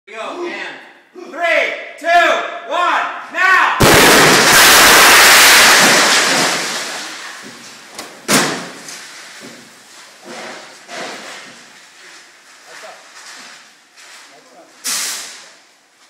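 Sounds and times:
explosion blast roar: 0:03.8 - 0:07.3
sharp crash: 0:03.8 - 0:07.5, 0:14.8 - 0:15.5
debris knocks and clatters: 0:04.0 - 0:11.8.

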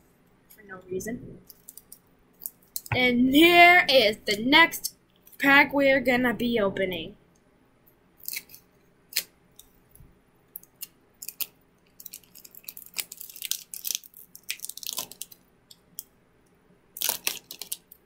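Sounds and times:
foil wrapper crinkling: 0:01.4 - 0:02.9, 0:10.6 - 0:15.4, 0:17.0 - 0:18.0.

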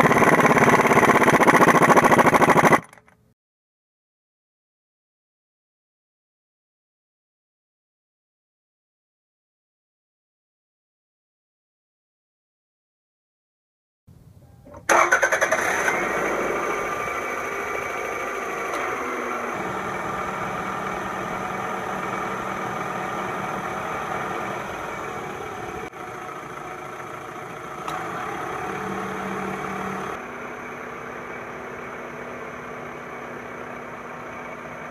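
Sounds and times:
car engine idling: 0:14.9 - 0:34.9.

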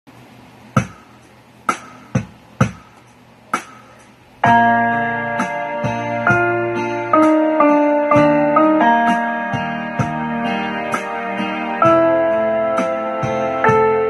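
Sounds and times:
keyboard chords with bass line: 0:00.8 - 0:14.0.

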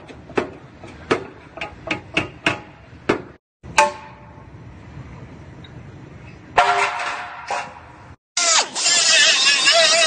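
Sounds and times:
hammer striking steel: 0:01.1 - 0:04.5.

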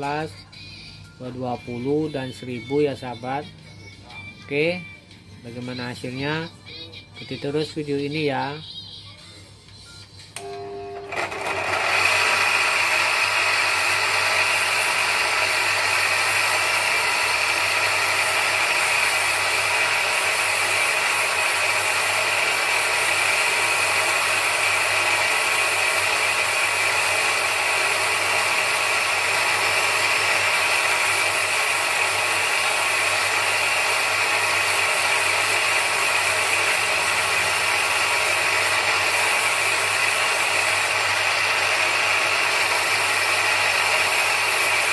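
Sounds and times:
bench grinder motor humming: 0:10.4 - 0:44.9.

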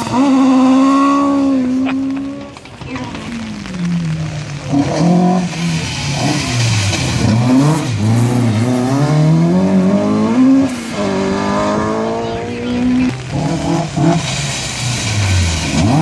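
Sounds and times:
rally car engine revving: 0:00.0 - 0:16.0
tyre hiss on wet tarmac: 0:13.7 - 0:16.0.

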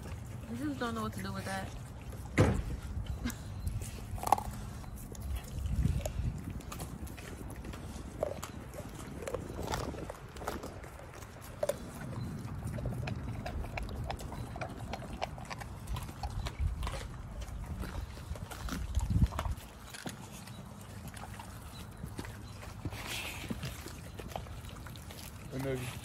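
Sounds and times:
dog chewing and crunching: 0:00.0 - 0:26.0
thump: 0:02.4 - 0:02.8.

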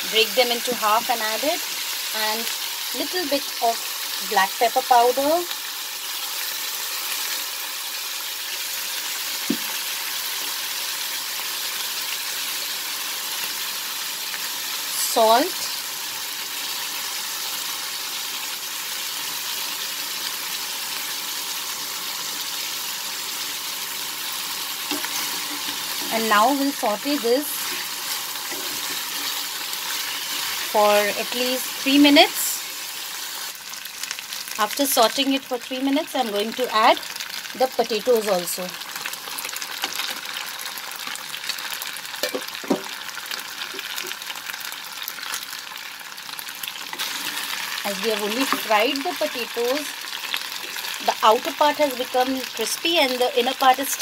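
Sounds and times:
chicken frying in oil: 0:00.0 - 0:54.0
scrape in frying pan: 0:24.6 - 0:26.4, 0:27.1 - 0:31.1, 0:46.9 - 0:47.8.

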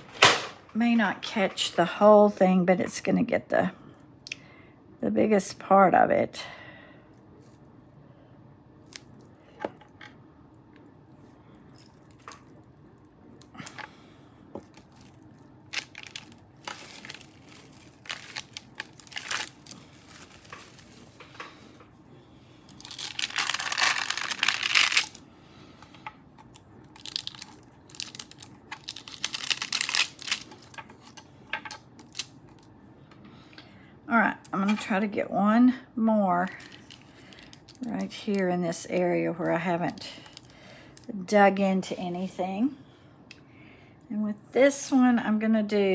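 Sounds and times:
plastic and paper crinkling: 0:14.6 - 0:21.8, 0:22.7 - 0:25.2, 0:26.4 - 0:31.2, 0:32.0 - 0:32.7, 0:36.6 - 0:38.5.

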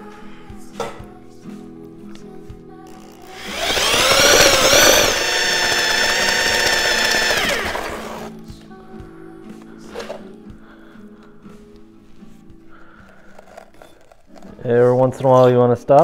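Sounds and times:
electric mixer paddle spinning: 0:03.3 - 0:08.4.

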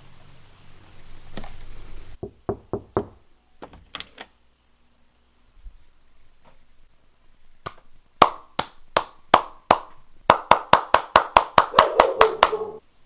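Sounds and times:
hand slaps on bare skin: 0:07.6 - 0:12.6.

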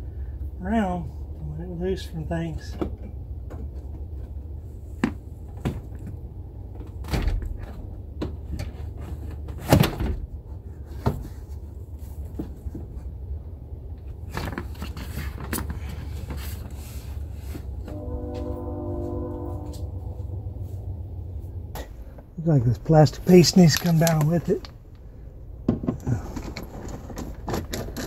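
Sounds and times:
steady low hum: 0:10.2 - 0:28.0.

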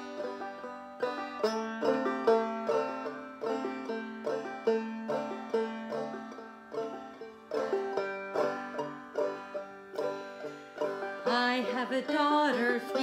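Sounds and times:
banjo picking: 0:00.0 - 0:13.0
woman singing: 0:11.2 - 0:13.0.

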